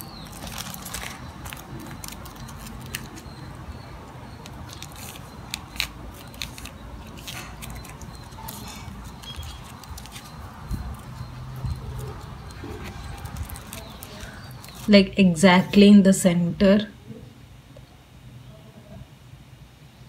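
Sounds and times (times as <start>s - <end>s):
foil wrappers crinkling: 0.0s - 3.6s, 4.4s - 14.9s.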